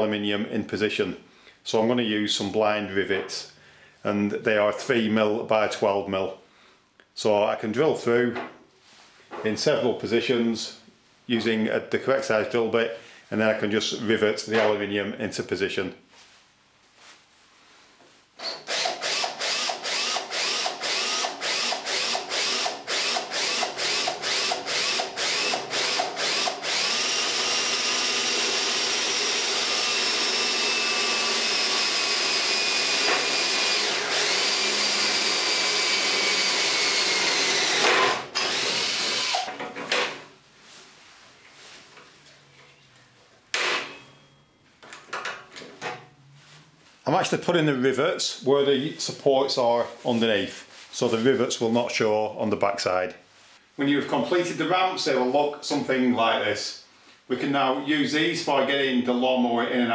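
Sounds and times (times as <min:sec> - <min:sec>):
power drill boring metal: 0:18.4 - 0:39.5.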